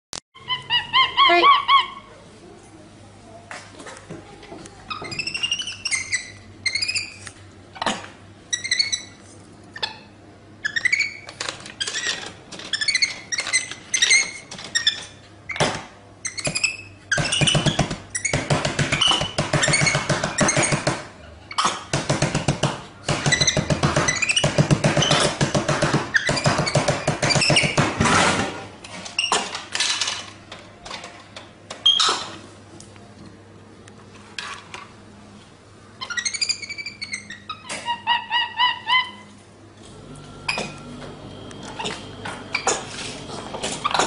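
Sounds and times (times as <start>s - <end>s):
monkey squeaky chirps: 0.4s - 2.1s, 36.0s - 39.3s.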